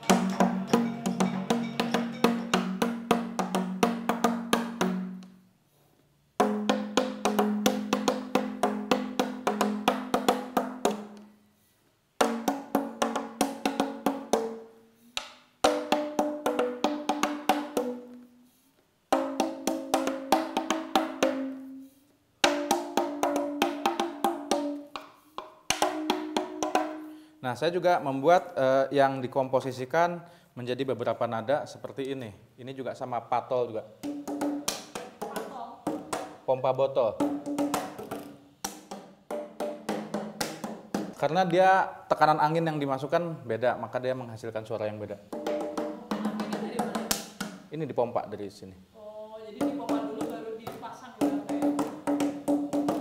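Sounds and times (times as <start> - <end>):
tapping air-filled plastic bottle: 22.4 - 27.2.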